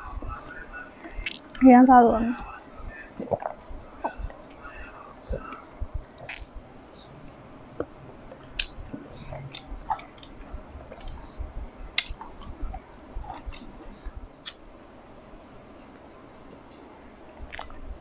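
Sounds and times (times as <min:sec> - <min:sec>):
close chewing of grapes: 0:07.2 - 0:13.8, 0:17.4 - 0:17.8.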